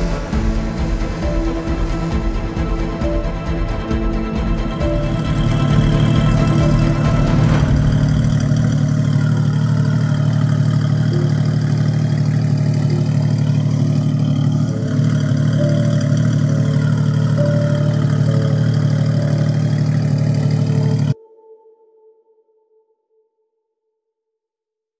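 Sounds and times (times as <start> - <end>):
car engine idling: 0.0 - 21.2.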